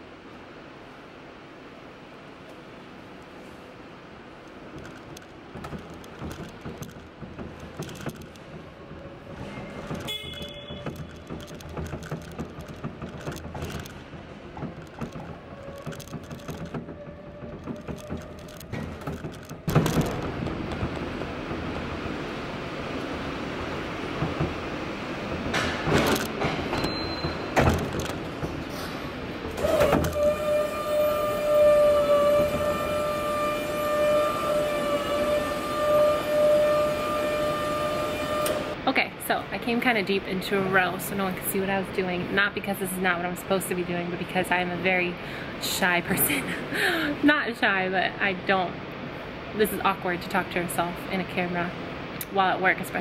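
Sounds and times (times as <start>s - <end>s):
sharp knocks and clatters: 4.7s - 8.8s, 9.7s - 21.7s, 25.3s - 28.7s
forklift running: 29.3s - 38.8s.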